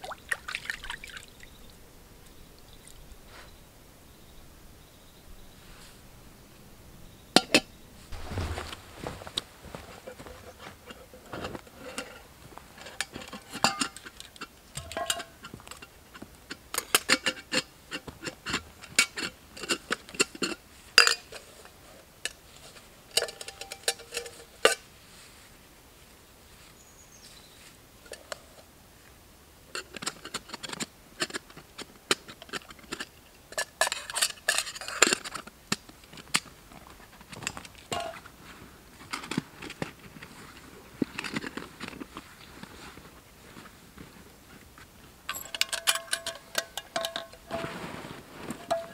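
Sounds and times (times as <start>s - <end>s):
metal cookware clinking: 13.0s - 14.1s, 14.8s - 15.5s, 23.2s - 24.8s, 37.9s - 38.2s, 45.3s - 47.7s, 48.6s - 48.9s.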